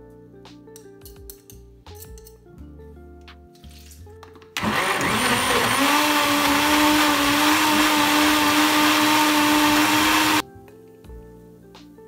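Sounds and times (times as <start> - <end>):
blender motor running: 4.6 - 10.4.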